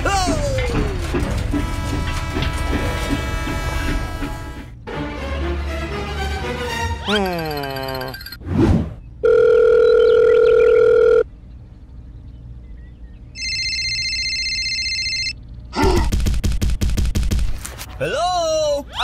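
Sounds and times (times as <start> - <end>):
electronic phone ring: 9.2 - 11.3, 13.4 - 15.4
steady electronic call tone: 9.2 - 11.3, 13.4 - 15.4.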